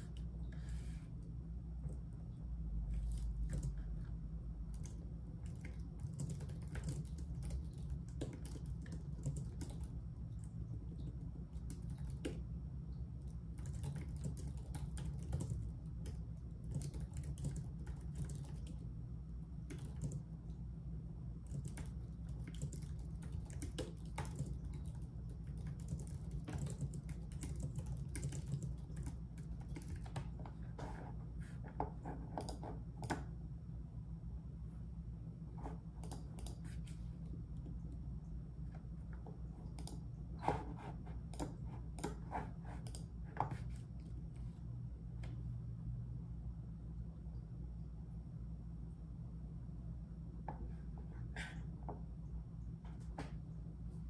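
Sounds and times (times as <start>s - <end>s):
keyboard typing: 3.0s - 3.8s, 4.7s - 12.4s, 13.2s - 18.8s, 19.6s - 20.3s, 21.4s - 30.6s, 36.0s - 37.0s, 39.6s - 44.1s.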